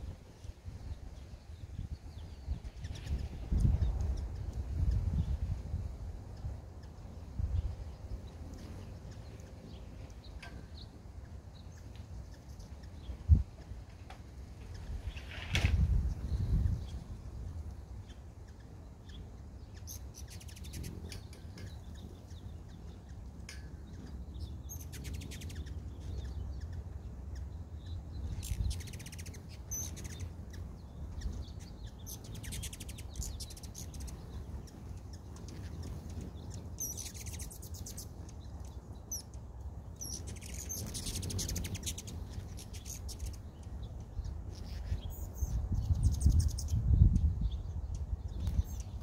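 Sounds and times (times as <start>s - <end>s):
hummingbirds buzzy chip chatter: 0.3s - 15.2s, 15.9s - 49.0s.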